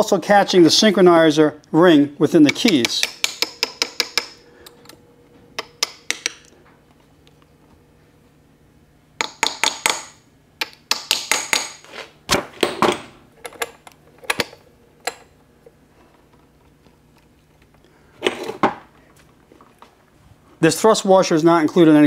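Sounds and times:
hammer tapping steel parts: 2.4s - 5.0s, 5.6s - 6.5s.

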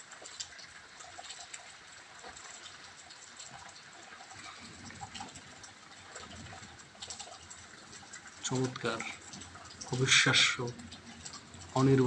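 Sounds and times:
rain pattering: 0.0s - 12.0s
water drips: 0.0s - 12.0s.

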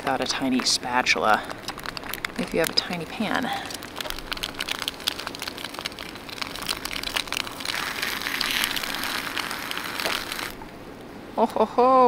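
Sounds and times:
egg sizzling in frying pan: 3.6s - 10.7s.

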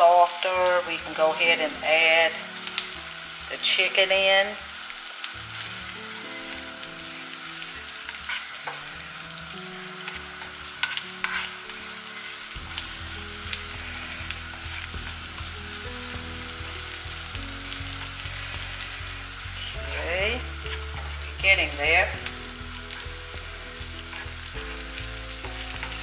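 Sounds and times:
potatoes sizzling in oil: 0.0s - 26.0s
utensil scraping pan: 8.1s - 8.9s, 10.0s - 12.4s.

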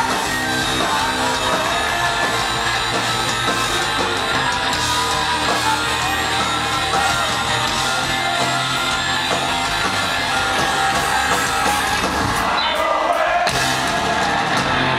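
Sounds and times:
person singing: 0.0s - 14.3s
distorted electric guitars: 0.0s - 14.9s
drums: 0.0s - 14.9s.

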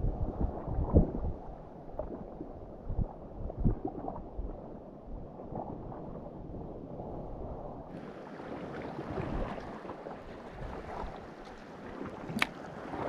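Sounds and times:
wind rumbling on microphone: 0.0s - 13.0s
sea water sloshing: 7.9s - 13.0s.

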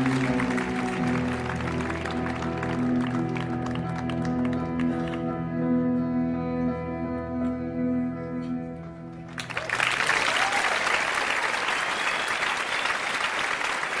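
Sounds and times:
audience applause: 0.0s - 5.2s, 9.3s - 14.0s.

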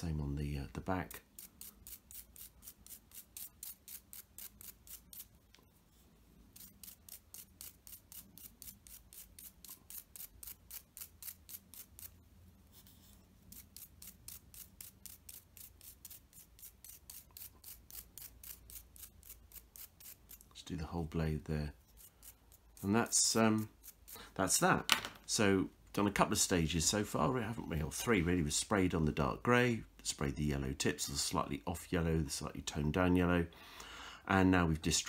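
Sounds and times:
toothbrush scrubbing plastic: 1.2s - 5.6s, 6.5s - 12.2s.

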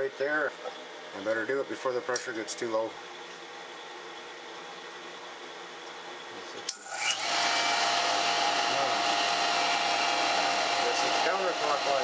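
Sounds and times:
pump motor running: 6.7s - 12.0s.

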